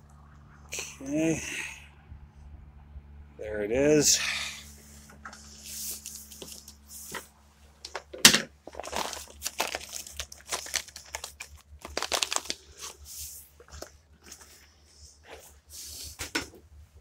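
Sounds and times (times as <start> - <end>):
plastic packaging crinkling: 8.6 - 14.4.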